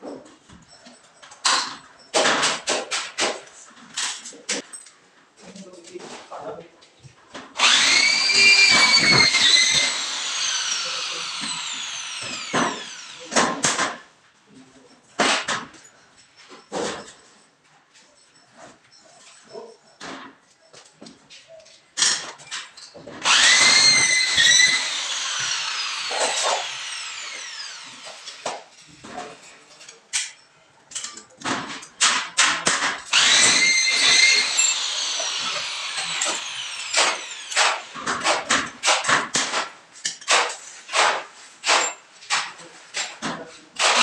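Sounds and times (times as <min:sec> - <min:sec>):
electric drill whining: 0:07.6 - 0:13.4, 0:23.2 - 0:28.9, 0:33.1 - 0:38.4.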